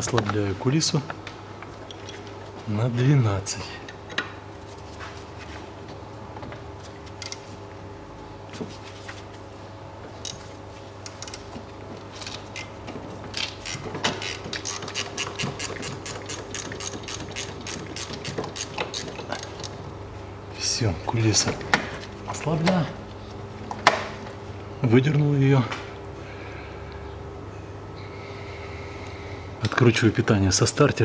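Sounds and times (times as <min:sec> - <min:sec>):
steady low hum: 0:00.0 - 0:31.0
ratchet wrench clicking: 0:13.6 - 0:19.7.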